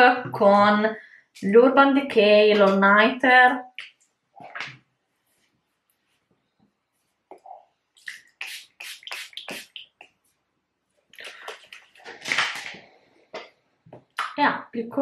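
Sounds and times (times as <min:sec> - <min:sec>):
spray bottle hissing mists: 0:08.1 - 0:09.9.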